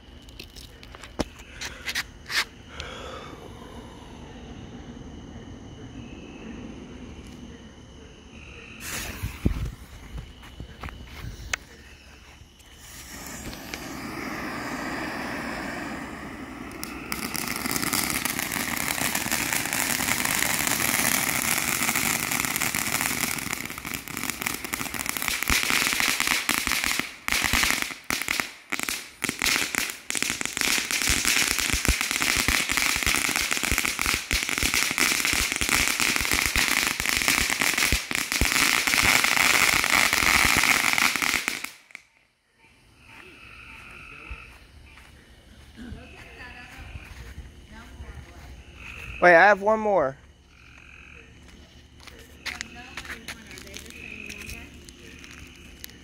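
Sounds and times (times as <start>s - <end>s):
fountain firework hissing: 8.8s - 9.6s, 12.5s - 42.0s
firework crackling: 8.8s - 42.1s, 52.4s - 56.0s.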